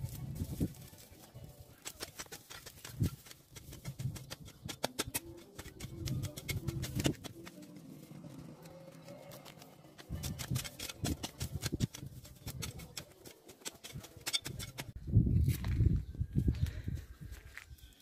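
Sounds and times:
hoe chopping and scraping ground: 0:01.7 - 0:15.0.

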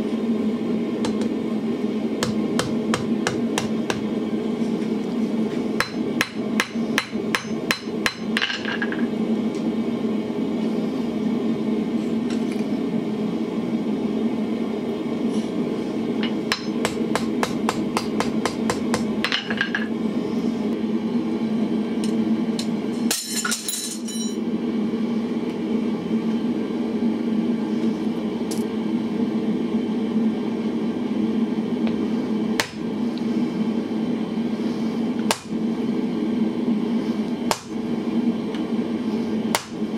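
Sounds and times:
hammer striking steel on anvil: 0:05.8 - 0:09.0, 0:16.2 - 0:19.8.

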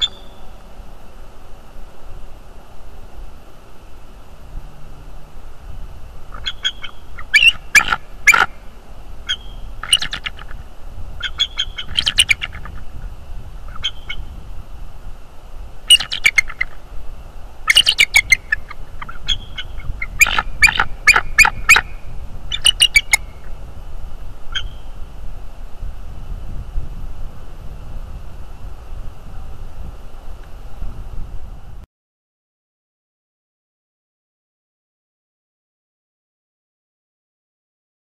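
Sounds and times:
bird calling staccato notes: 0:00.0 - 0:00.5, 0:06.3 - 0:10.6, 0:11.2 - 0:12.9, 0:13.7 - 0:14.3, 0:15.9 - 0:16.8, 0:17.7 - 0:23.5.

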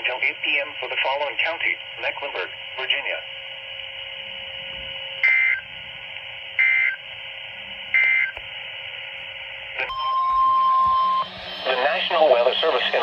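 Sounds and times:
steady radio hiss: 0:00.0 - 0:13.0
digital code bursts from radio: 0:09.8 - 0:13.0.

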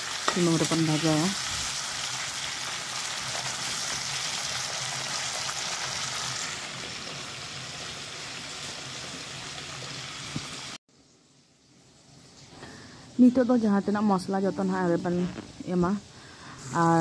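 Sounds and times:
onions and tomatoes sizzling in oil: 0:00.0 - 0:17.0.

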